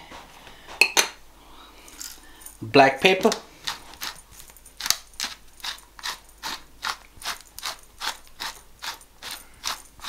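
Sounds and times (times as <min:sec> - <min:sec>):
pepper mill grinding: 0:02.8 - 0:10.0.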